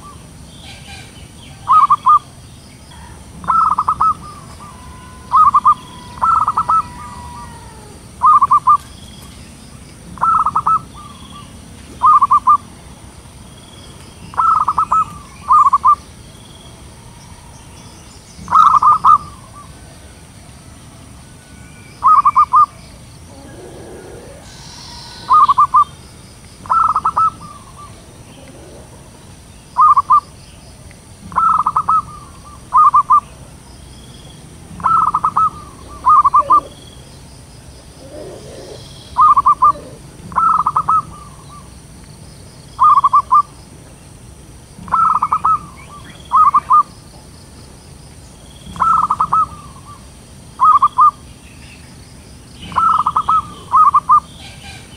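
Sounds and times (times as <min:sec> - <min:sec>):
dove cooing: 0:00.0 - 0:02.3, 0:02.9 - 0:08.8, 0:10.1 - 0:12.7, 0:14.3 - 0:16.0, 0:17.0 - 0:20.1, 0:22.0 - 0:26.0, 0:26.6 - 0:30.2, 0:31.2 - 0:33.4, 0:34.7 - 0:37.0, 0:37.9 - 0:41.7, 0:44.8 - 0:46.9, 0:48.7 - 0:50.0, 0:50.6 - 0:51.2, 0:52.6 - 0:54.9.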